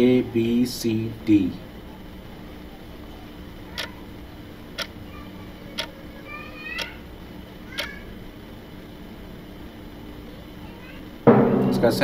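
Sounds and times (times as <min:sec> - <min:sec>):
timer ticking: 0:03.8 - 0:04.0, 0:04.8 - 0:05.0, 0:05.7 - 0:06.0, 0:06.8 - 0:07.0, 0:07.8 - 0:08.0.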